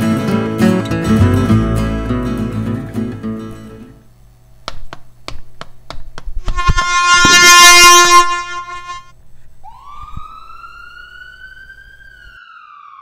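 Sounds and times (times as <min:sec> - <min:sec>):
sharp knocks: 0:04.6 - 0:07.8
truck air horn blaring: 0:06.5 - 0:09.1.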